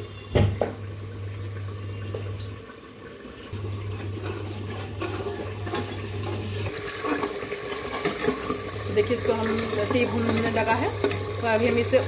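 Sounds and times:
spices sizzling in oil: 3.5s - 12.0s.

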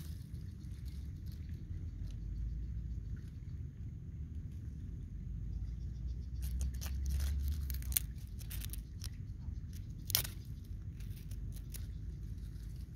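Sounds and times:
low steady rumble: 0.0s - 12.9s
stick scraping dry soil: 6.4s - 12.9s.

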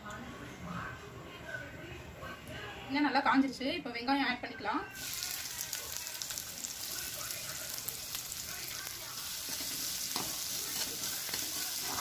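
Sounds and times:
onions sizzling in oil: 5.0s - 12.0s.

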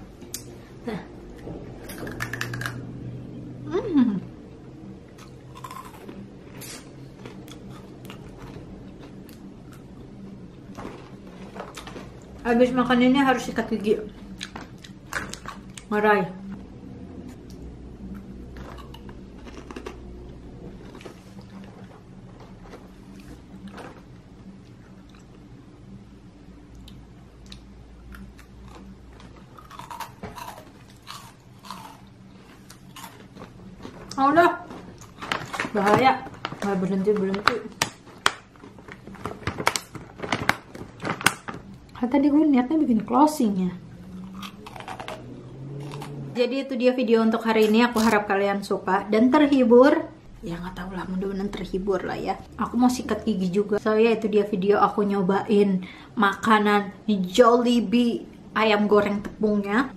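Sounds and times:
person crunching crisps: 2.1s - 2.8s, 5.2s - 9.8s, 10.7s - 12.4s, 18.5s - 20.2s, 28.1s - 41.7s, 44.1s - 46.2s.

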